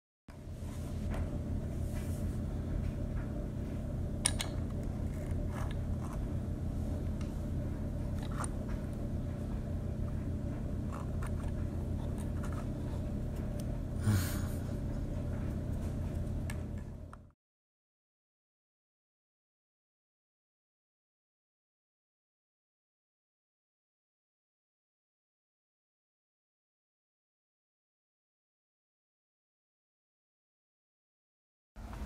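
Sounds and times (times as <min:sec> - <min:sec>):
low hum: 0:00.3 - 0:17.4.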